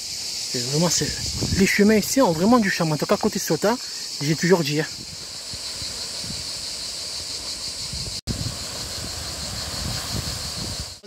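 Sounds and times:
cicadas chorus: 0.0s - 11.0s
wind rumble on microphone: 1.1s - 2.1s, 4.9s - 6.7s, 7.6s - 11.0s
sea surf on rocks: 8.3s - 11.0s.

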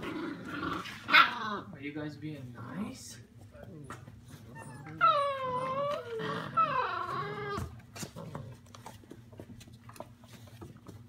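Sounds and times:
paws scratching and clicking: 3.4s - 11.0s
puppy whining: 3.8s - 8.8s.

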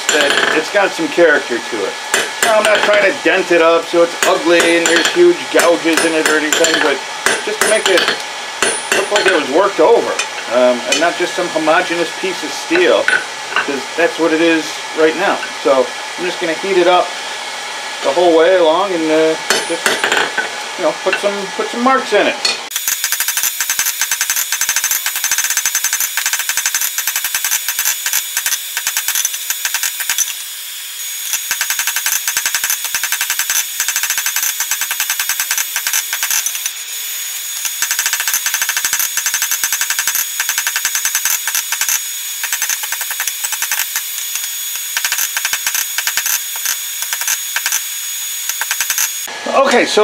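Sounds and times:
hammer striking hot steel on anvil: 0.0s - 0.7s, 2.1s - 3.1s, 4.2s - 9.5s, 19.5s - 20.5s.

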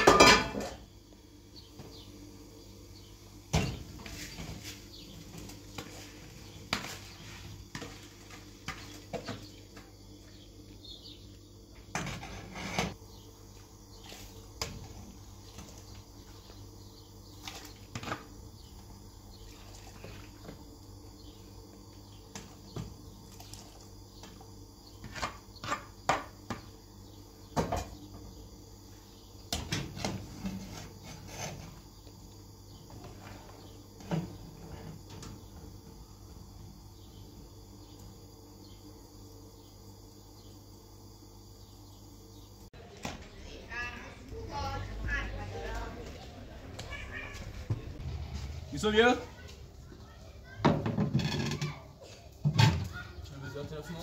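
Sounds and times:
pots and dishes clinking: 0.0s - 0.8s
faint background hum: 0.0s - 54.0s.

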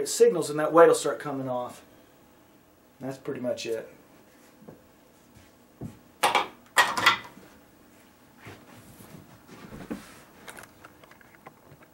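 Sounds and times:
shuffling: 3.6s - 6.0s, 7.4s - 10.9s.

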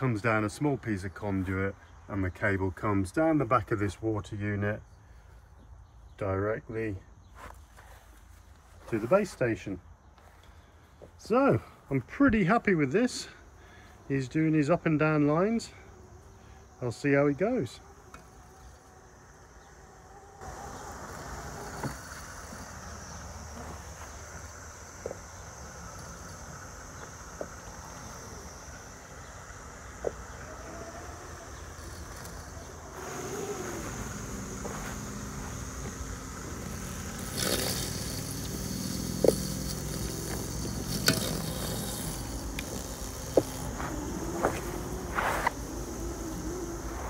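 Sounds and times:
robotic lawnmower hum: 12.8s - 47.0s.

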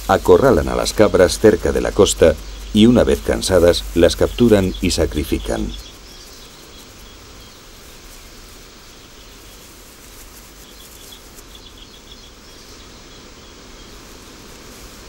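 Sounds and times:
faint high chirping: 0.0s - 8.2s
outdoor ambience hiss: 0.0s - 15.0s.

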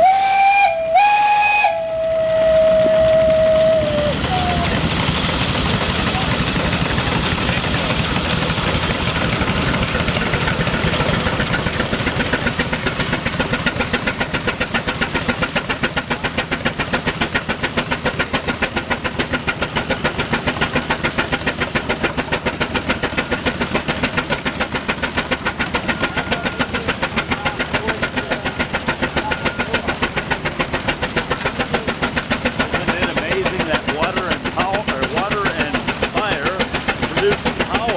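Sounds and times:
steam hiss: 0.0s - 8.4s
steam engine exhaust chuffs: 0.0s - 37.9s.

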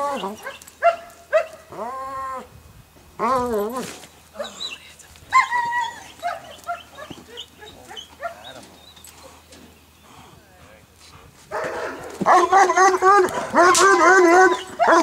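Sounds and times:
dog whining and yipping: 4.4s - 9.3s, 12.3s - 15.0s.

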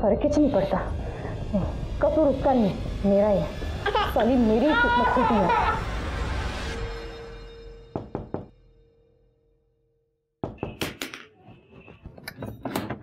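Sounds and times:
sharp knocks: 8.0s - 8.6s, 10.4s - 12.1s.

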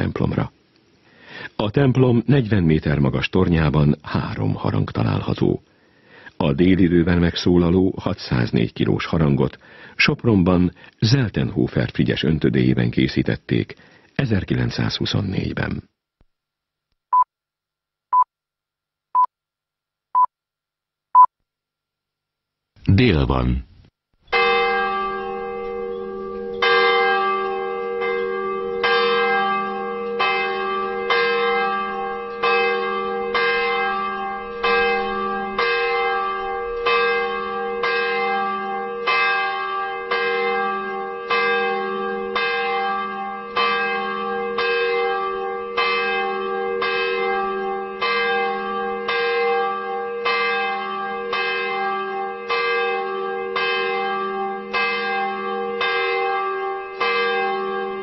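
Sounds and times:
church bell tolling: 24.3s - 58.0s.

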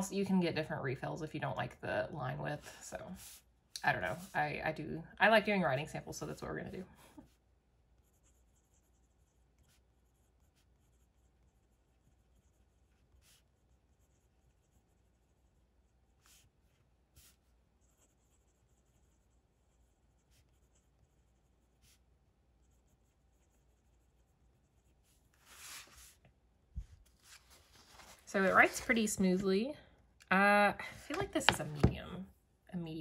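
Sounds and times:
pen scratching on paper: 8.0s - 26.2s.

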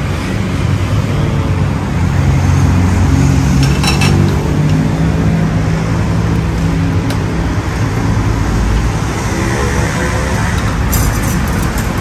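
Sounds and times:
road traffic rumble: 0.0s - 12.0s
utensils clinking: 3.6s - 4.3s, 10.9s - 12.0s.

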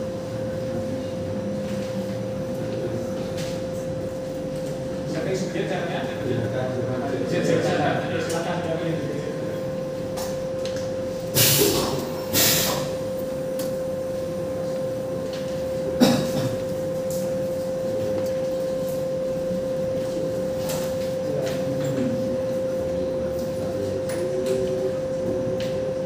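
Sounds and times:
machine humming: 0.0s - 26.0s
short hissing bursts: 11.4s - 12.8s.

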